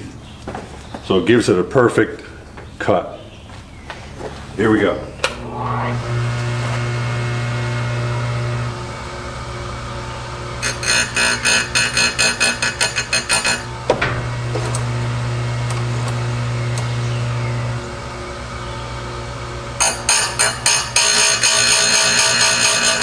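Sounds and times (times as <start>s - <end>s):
grinder motor humming: 5.3s - 23.0s
gritty grinding rasps: 10.4s - 15.0s, 19.8s - 23.0s.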